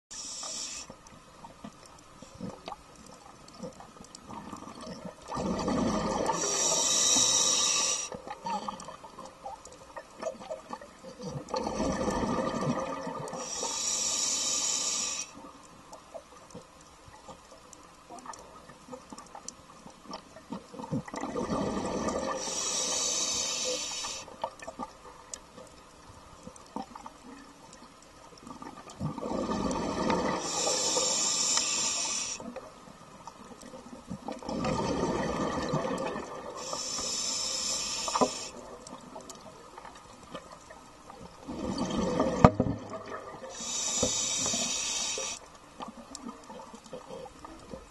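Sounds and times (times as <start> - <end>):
regulator breathing hiss: 0.1 - 1.1, 6.3 - 8.2, 13.3 - 15.5, 22.4 - 24.4, 30.4 - 32.5, 36.6 - 38.7, 43.5 - 45.5
exhaled bubbles gushing: 4.3 - 6.4, 11.5 - 13.3, 20.9 - 22.4, 34.4 - 36.6, 41.5 - 43.5.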